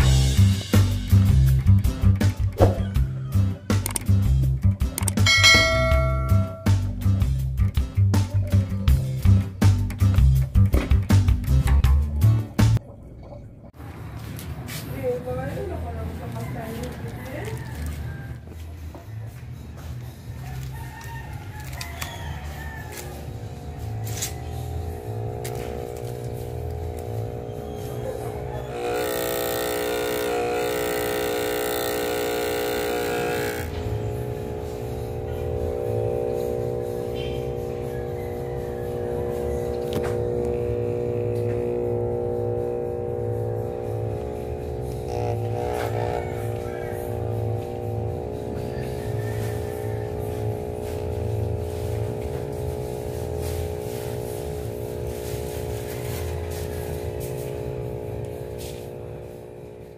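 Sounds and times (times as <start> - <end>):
air pump buzzing rattle: 21.6 - 59.9
air pump low hum: 22.4 - 59.9.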